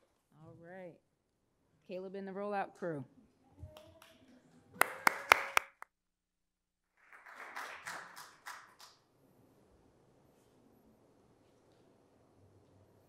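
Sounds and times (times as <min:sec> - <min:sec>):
audience clapping: 0:04.8 - 0:05.8, 0:06.9 - 0:09.1.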